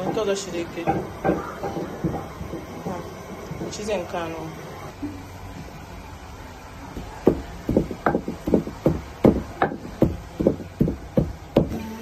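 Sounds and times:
pestle pounding in a mortar: 0.0s - 3.8s, 7.0s - 11.8s.

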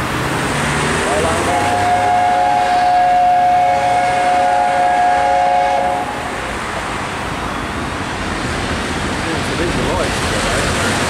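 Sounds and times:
steam locomotive chime whistle: 1.4s - 6.3s.

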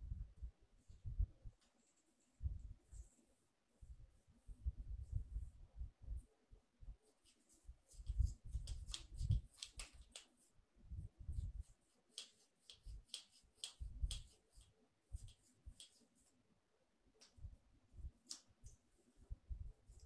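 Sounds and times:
light clicks and taps: 8.0s - 10.4s, 12.1s - 16.1s, 17.2s - 17.5s, 18.2s - 18.9s.

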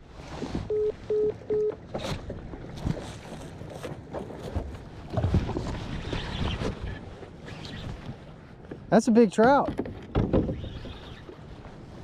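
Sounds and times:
waves slapping kayak hull: 0.0s - 12.0s
wind on microphone: 2.0s - 8.3s.

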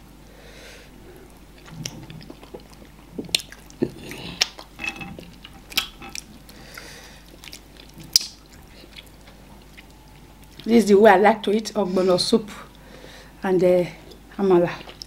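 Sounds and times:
wet chewing and lip smacks: 1.6s - 10.7s.

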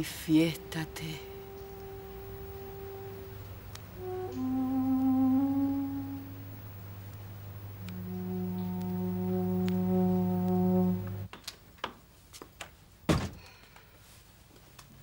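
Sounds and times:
low musical drone chord: 0.0s - 11.3s.

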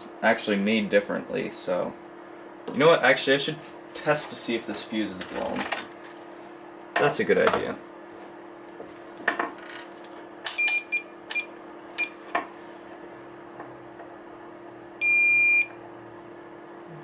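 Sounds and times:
multimeter steady beep: 10.6s - 12.2s, 15.0s - 15.8s.

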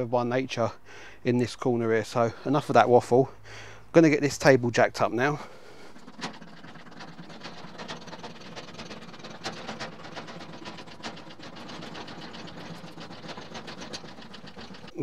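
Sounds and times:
hydraulic pump clicking and clattering: 5.9s - 15.0s.

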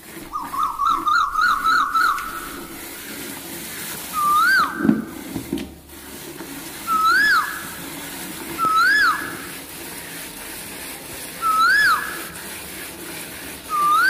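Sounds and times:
loud whistled animal call: 0.3s - 2.9s, 4.1s - 5.2s, 6.8s - 7.8s, 8.6s - 9.5s, 11.4s - 12.4s, 13.7s - 14.0s
milk squirting into metal pail: 2.2s - 11.4s.

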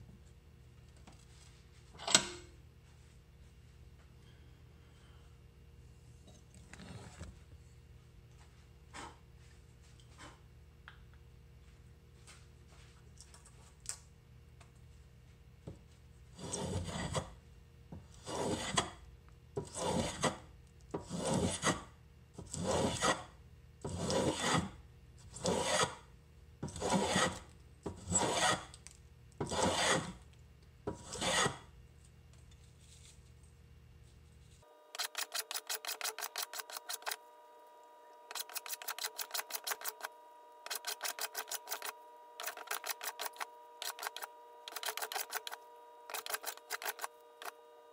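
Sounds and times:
hand rasp scraping wood: 16.4s - 17.3s, 18.2s - 18.9s, 19.6s - 20.4s, 21.0s - 21.8s, 22.4s - 23.3s, 23.9s - 26.0s, 26.6s - 28.7s, 29.4s - 30.2s, 30.9s - 31.7s, 35.0s - 37.2s, 38.3s - 47.5s.

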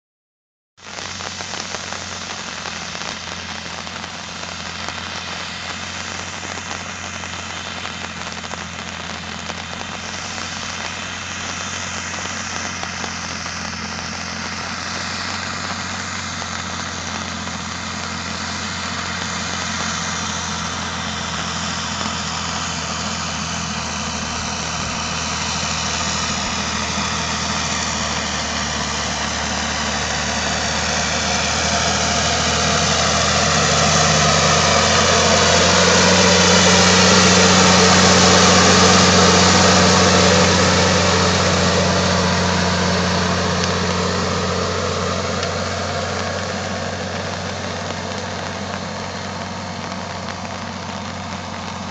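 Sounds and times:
tractor diesel engine under load: 0.8s - 51.9s.

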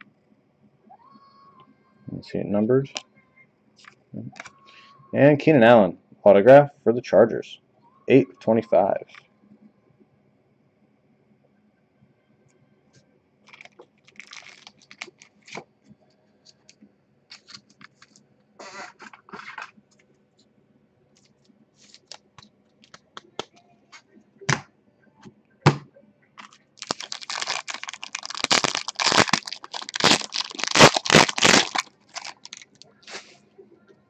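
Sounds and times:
foil card pack tearing open: 13.5s - 15.6s, 26.4s - 33.2s.

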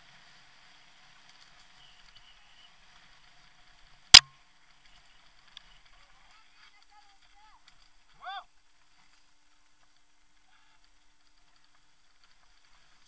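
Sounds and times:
bike tyres rolling on dirt: 0.0s - 13.0s.

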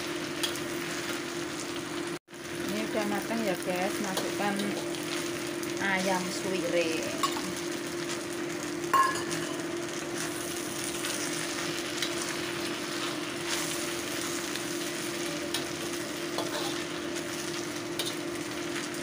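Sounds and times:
food sizzling in a wok: 0.0s - 19.0s
metal spatula scraping wok: 10.2s - 18.3s.

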